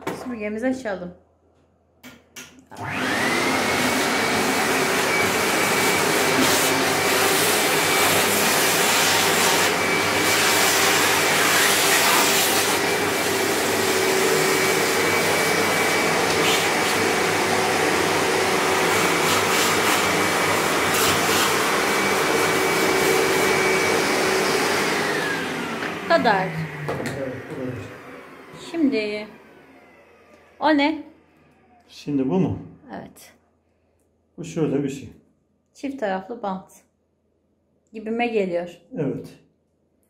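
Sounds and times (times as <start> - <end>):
vacuum cleaner motor whine: 2.7 - 32.0.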